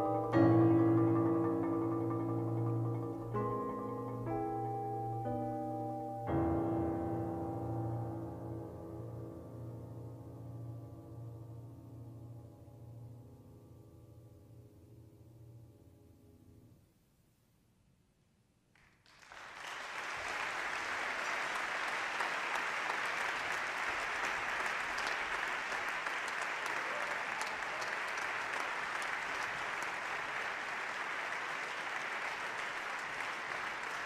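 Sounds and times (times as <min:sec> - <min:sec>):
audience applauding: 0:18.8 - 0:34.0.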